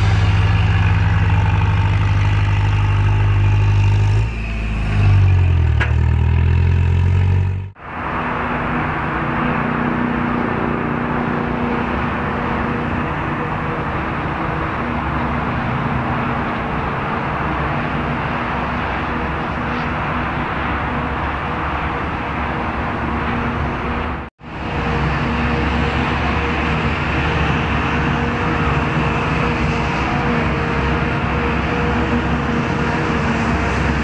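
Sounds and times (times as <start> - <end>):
forage harvester running: 0.0 - 6.9, 24.4 - 34.0
tractor running: 0.0 - 34.0.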